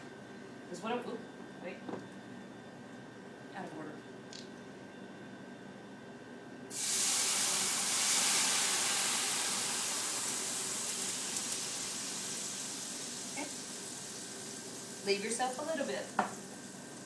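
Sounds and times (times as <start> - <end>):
pan sizzling hiss: 6.7 - 17.0.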